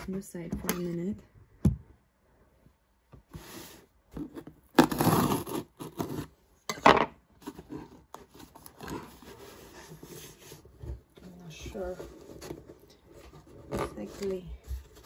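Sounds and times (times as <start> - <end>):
hands scraping cardboard box: 3.4 - 6.3.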